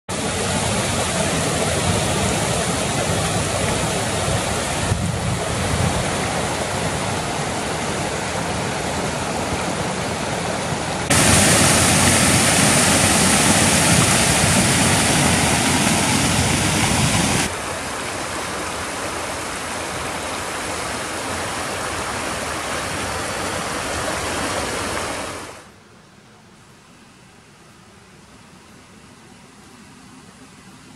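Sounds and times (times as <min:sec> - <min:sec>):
water rushing over rocks: 0:00.1 - 0:25.6.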